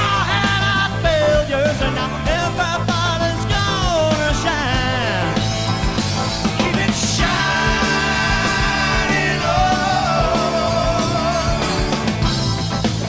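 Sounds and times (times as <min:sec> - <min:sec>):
rock band playing: 0:00.0 - 0:13.0
person singing: 0:06.6 - 0:12.0.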